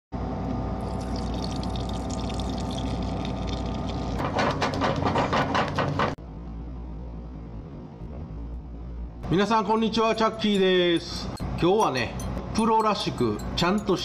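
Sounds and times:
liquid pouring through strainer: 0:00.8 - 0:04.5.

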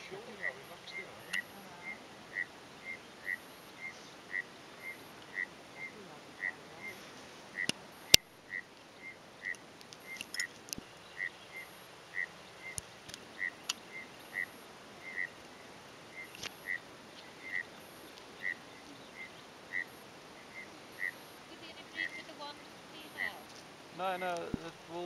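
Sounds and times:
faint clicks: 0:07.0 - 0:10.9, 0:12.2 - 0:14.5, 0:16.2 - 0:19.9, 0:24.3 - 0:24.7.

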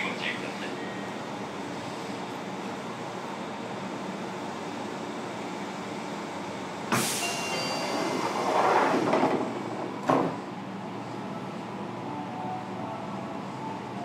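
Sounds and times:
doors sliding: 0:07.0 - 0:10.4.

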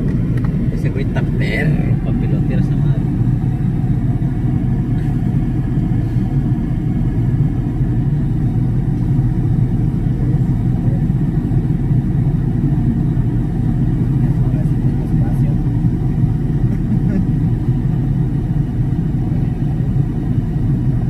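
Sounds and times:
helicopter rotor rumble: 0:00.0 - 0:21.0.

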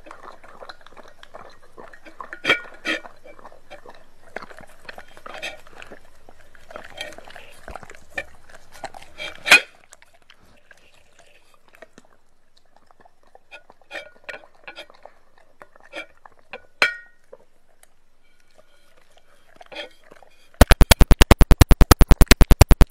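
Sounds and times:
dog licking: 0:00.0 - 0:21.2
electronic scratch effect pulses: 0:20.6 - 0:22.9.

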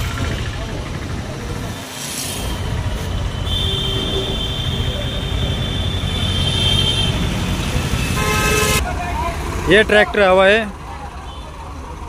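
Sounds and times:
tractor diesel engines idling: 0:00.0 - 0:12.0.

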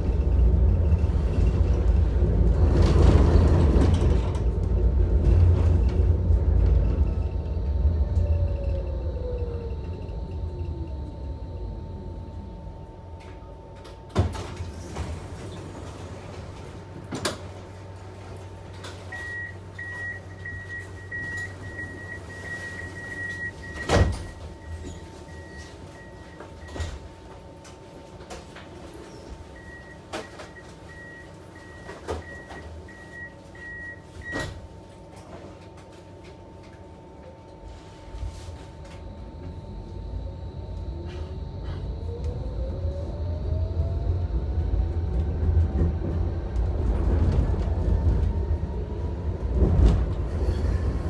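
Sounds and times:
tram motor whine: 0:00.0 - 0:51.0
electrical hum: 0:04.7 - 0:51.0
high door signal beep: 0:19.1 - 0:27.0, 0:29.6 - 0:34.6.

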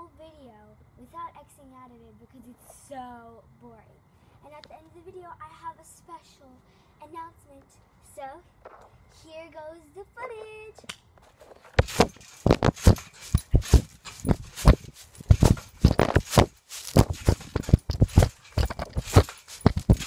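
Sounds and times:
irregular knocks and clicks: 0:11.7 - 0:20.0.

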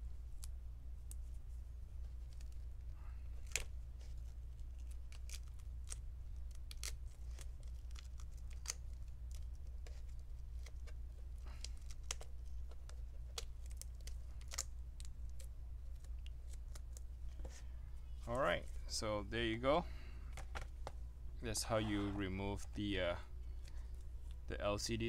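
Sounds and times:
steady low hum: 0:00.0 - 0:25.0
tape peeling clicks and crinkles: 0:02.0 - 0:17.5.

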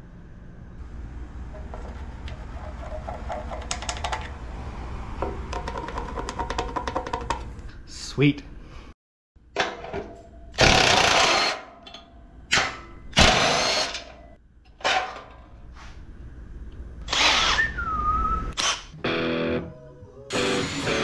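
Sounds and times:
power drill boring through steel: 0:10.6 - 0:11.6, 0:13.2 - 0:14.0, 0:17.1 - 0:17.7, 0:20.3 - 0:21.0.

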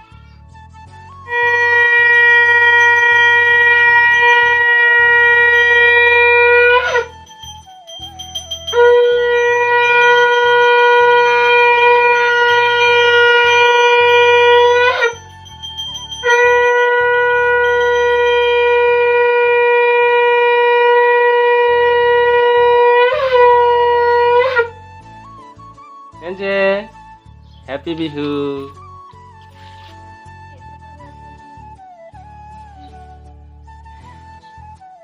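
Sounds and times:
conch shell blasts: 0:01.3 - 0:24.8.

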